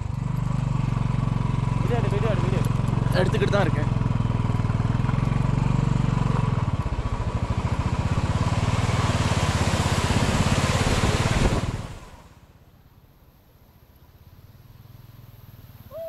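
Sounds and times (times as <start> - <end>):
motorcycle engine running: 0.0 - 12.3
water rushing over stone: 8.1 - 12.2.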